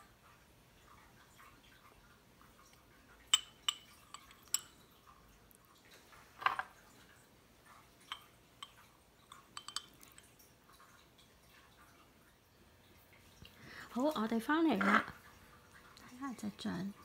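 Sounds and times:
metal spoon clinking on glass jars: 3.3 - 4.8, 8.1 - 10.3.

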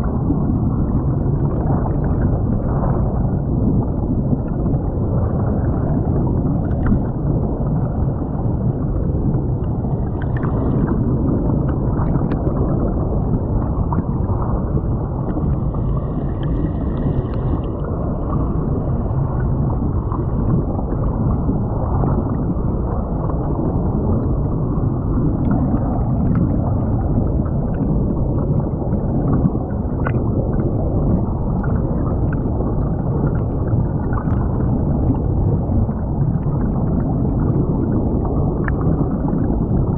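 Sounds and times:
muffled underwater water rush: 0.0 - 39.9.

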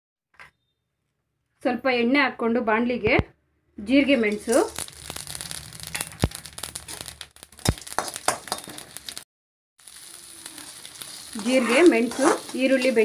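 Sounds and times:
seeds crackling in hot oil: 3.8 - 9.2, 9.8 - 13.0
onion sizzling: 3.8 - 13.0.

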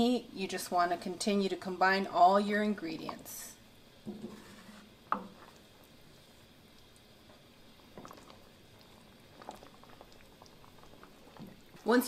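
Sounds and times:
spoon scraping sauce in pot: 4.1 - 5.5
spoon knocking pot: 5.1 - 5.4.

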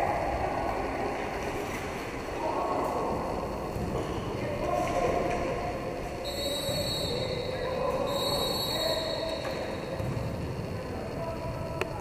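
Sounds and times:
referee's whistle: 6.2 - 9.7.

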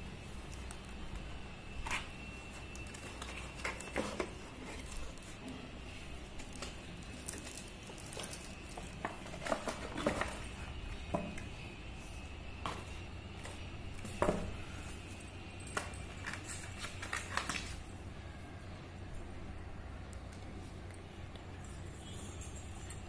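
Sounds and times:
plastic film crinkling: 16.1 - 17.9.

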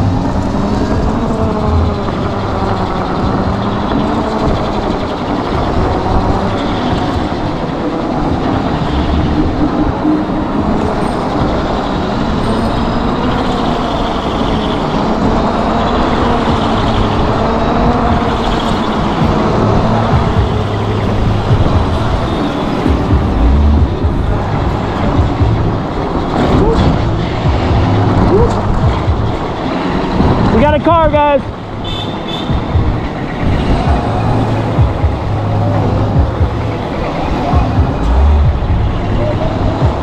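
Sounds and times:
electric motors whining: 0.0 - 30.8
wind rushing over microphone: 0.0 - 40.0.

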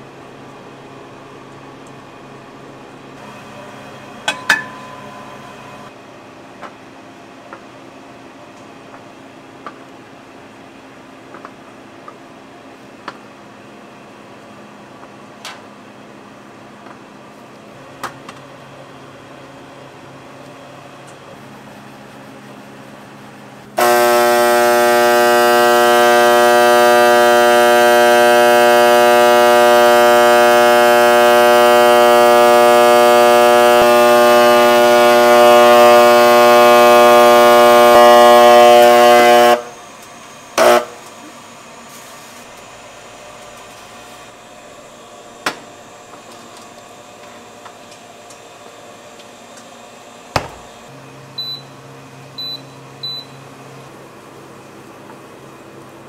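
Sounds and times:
loud electrical buzzing hum: 23.6 - 41.3, 49.9 - 54.5.

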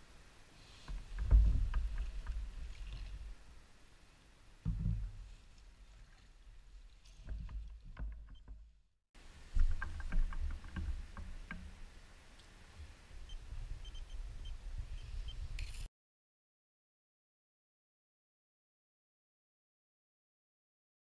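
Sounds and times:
low rumble of wind and water: 0.0 - 15.6
knocks and clicks: 7.2 - 8.8, 9.6 - 11.8.

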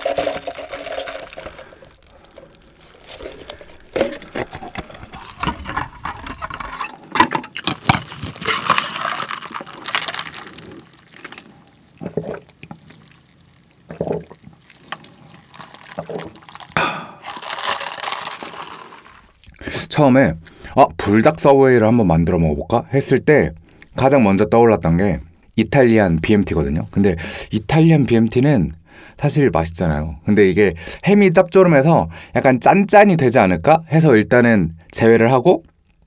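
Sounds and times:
liquid sloshing in cup: 0.0 - 19.6
plastic lid crackling and clicking: 3.1 - 8.9.

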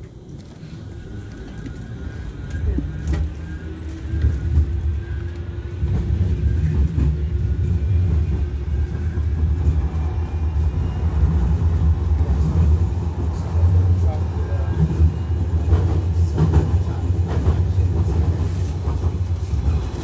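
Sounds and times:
tram wheels rumbling: 0.0 - 20.0.

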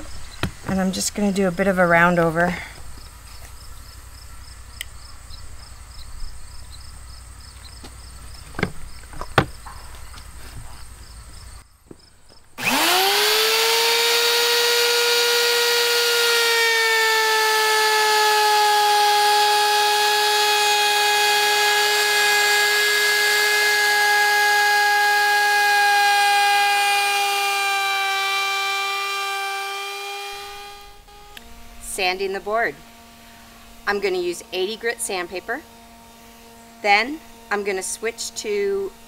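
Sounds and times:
router whining: 0.0 - 39.0
router cutting wood: 12.6 - 39.0.

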